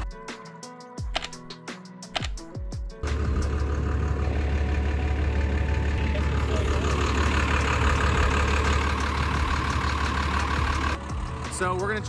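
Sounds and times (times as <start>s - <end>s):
vehicle engine idling: 3.0s - 12.0s.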